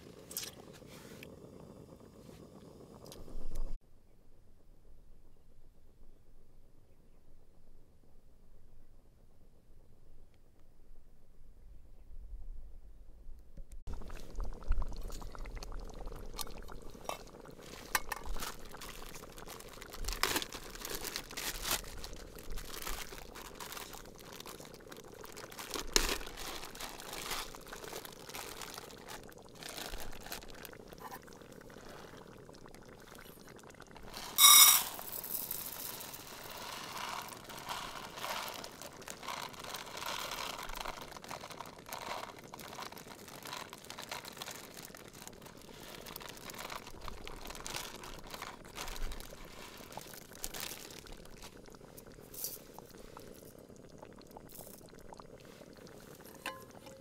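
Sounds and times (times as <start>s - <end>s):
dry food poured into metal mug: 16.0s - 31.2s, 34.0s - 52.6s, 54.5s - 54.8s, 56.2s - 57.0s
plastic bag handled: 17.6s - 30.7s, 35.0s - 51.6s
ringing metal clink: 34.4s - 35.0s.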